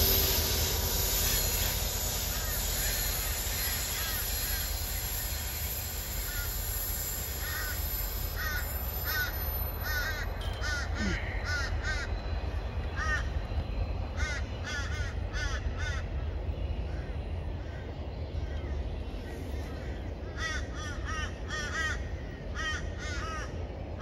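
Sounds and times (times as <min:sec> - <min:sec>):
steady low rumble: 0:00.0 - 0:05.2
crow cawing: 0:07.4 - 0:07.8, 0:08.4 - 0:12.1, 0:14.2 - 0:16.0, 0:20.4 - 0:23.5.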